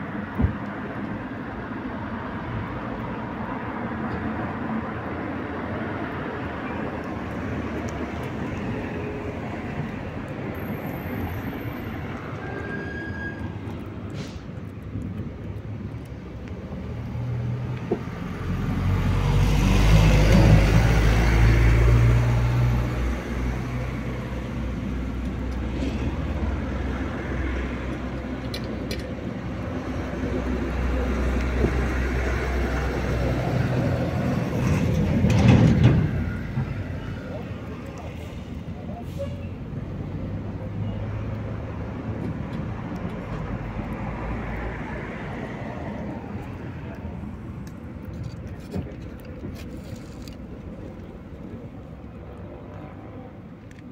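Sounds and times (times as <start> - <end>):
vehicle passing: 4.5 - 28.2
cat chewing wet food: 7.0 - 10.5, 13.5 - 18.2.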